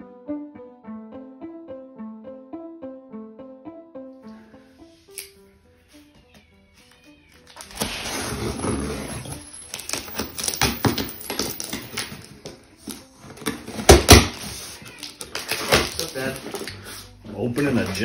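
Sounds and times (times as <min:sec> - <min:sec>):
packing tape tearing: 0:06.8 - 0:18.0
tape and cardboard rustling: 0:06.8 - 0:18.0
knocks on cardboard box: 0:13.8 - 0:14.4.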